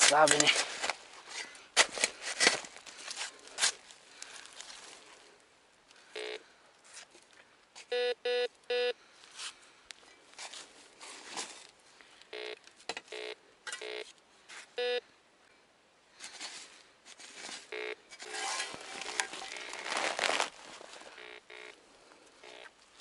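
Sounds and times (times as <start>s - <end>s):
metal detector beeps: 7.9s - 8.9s, 12.3s - 14.1s, 14.8s - 15.0s, 17.7s - 18.0s, 21.2s - 21.8s, 22.4s - 22.7s
rustling in leaf litter: 18.3s - 21.2s.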